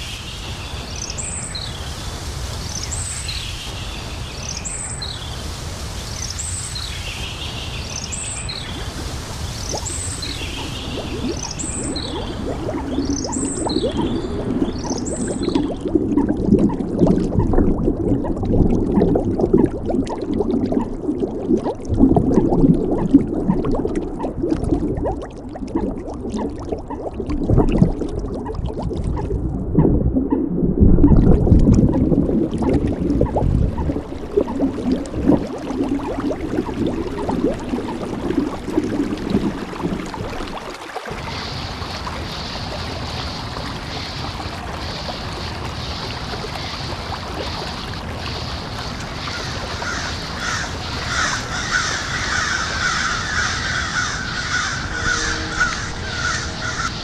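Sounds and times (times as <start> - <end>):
steady hiss: 0.0 - 13.4, 41.1 - 57.0
low crackling and gurgling: 0.0 - 57.0
birds calling: 49.3 - 57.0.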